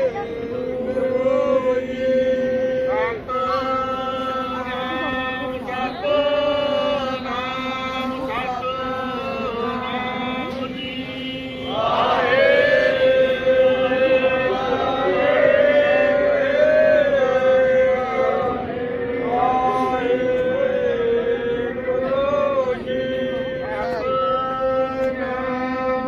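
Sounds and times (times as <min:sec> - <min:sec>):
voices chanting: 0:00.0 - 0:26.0.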